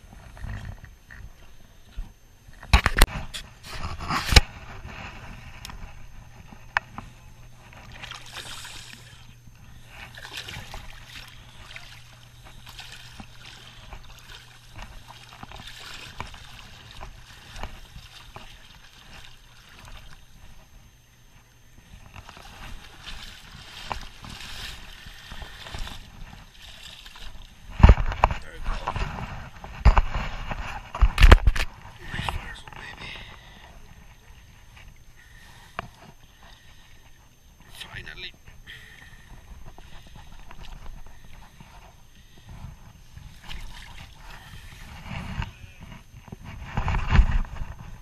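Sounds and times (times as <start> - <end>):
water splashing from thrashing fish: 7.8 - 20.6, 22.2 - 28.1, 43.3 - 44.9.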